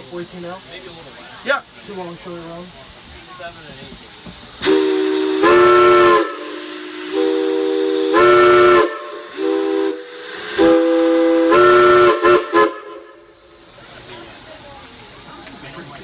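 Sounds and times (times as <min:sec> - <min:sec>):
steam locomotive chime whistle: 0:04.6 - 0:13.4.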